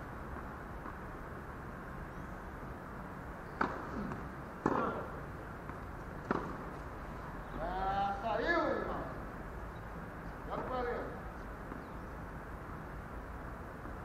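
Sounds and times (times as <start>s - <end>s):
steady background hiss: 0.0s - 14.0s
tennis ball racket strokes: 3.4s - 7.7s.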